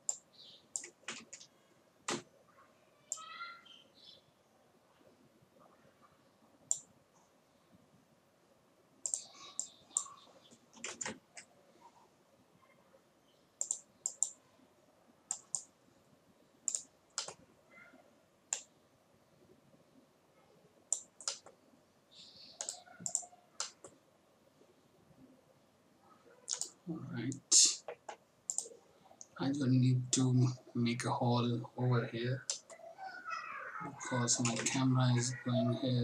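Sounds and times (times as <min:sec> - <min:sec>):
mouse and keyboard clicks: 0:00.0 - 0:01.5, 0:09.0 - 0:10.1, 0:13.6 - 0:14.4, 0:15.3 - 0:15.7, 0:16.7 - 0:17.4, 0:20.9 - 0:21.6, 0:22.6 - 0:24.0, 0:26.5 - 0:26.8, 0:27.8 - 0:28.7, 0:32.5 - 0:32.8, 0:34.4 - 0:34.8.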